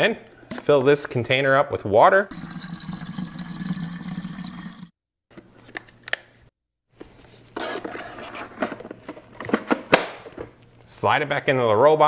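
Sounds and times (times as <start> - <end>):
tap water running into tank: 2.3 - 4.9.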